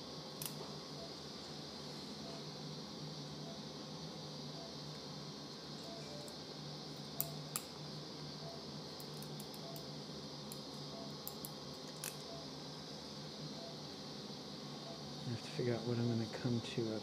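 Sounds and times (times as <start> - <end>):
equipment hum: 0.0 - 17.0
monitor beeping: 5.8 - 6.3, 8.4 - 8.7, 10.9 - 11.2, 12.2 - 12.5, 13.5 - 13.9, 14.8 - 15.1.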